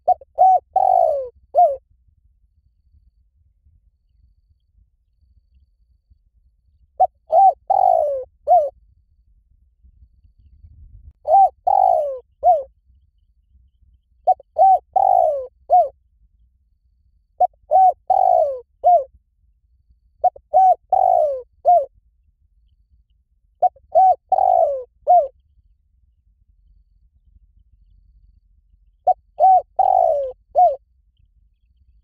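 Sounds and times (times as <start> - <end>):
dove cooing: 0.0 - 1.8, 7.0 - 8.8, 11.2 - 12.7, 14.2 - 15.9, 17.4 - 19.1, 20.2 - 21.9, 23.6 - 25.3, 29.0 - 30.8.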